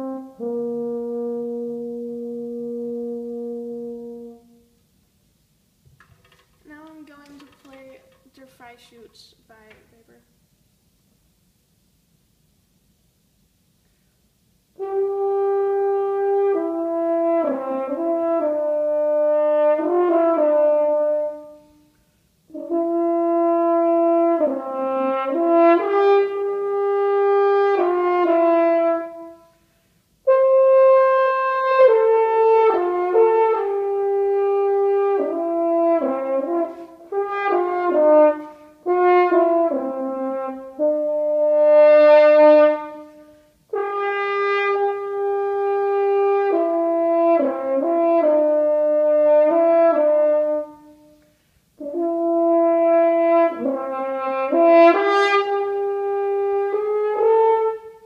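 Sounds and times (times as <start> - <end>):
french horn solo melody: 0.0 - 5.5, 13.4 - 58.0.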